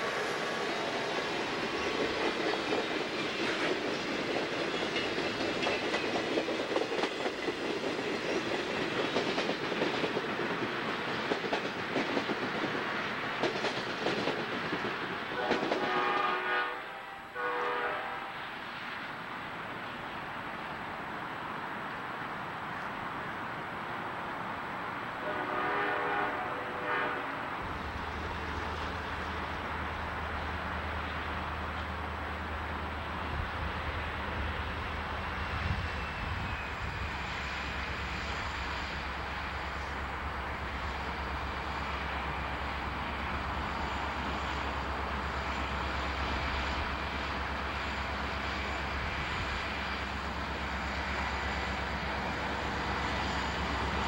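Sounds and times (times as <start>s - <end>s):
train wheels rushing on rail: 0.0s - 54.0s
locomotive air horn: 15.4s - 18.5s, 25.2s - 27.6s.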